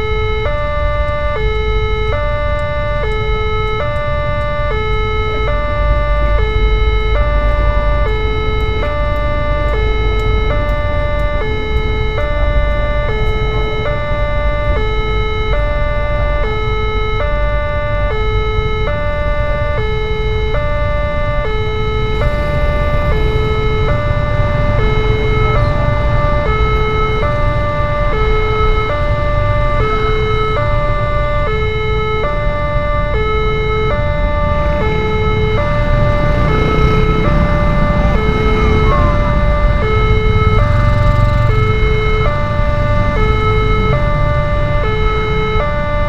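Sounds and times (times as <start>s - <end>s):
two-tone level crossing alarm: 0.0s - 46.0s
motorcycle engines running: 20.5s - 46.0s.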